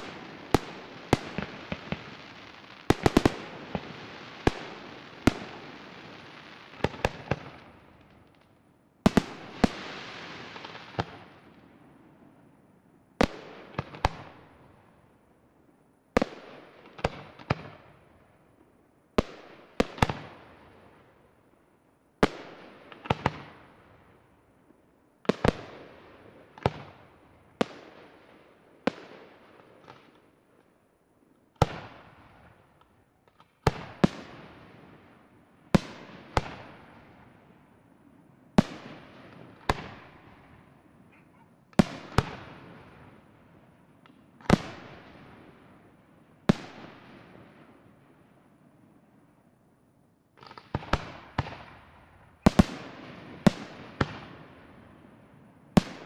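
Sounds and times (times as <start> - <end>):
fireworks bursting with echo: 0.0 - 12.3, 22.2 - 24.1, 25.3 - 30.3, 31.6 - 48.7, 50.4 - 56.0.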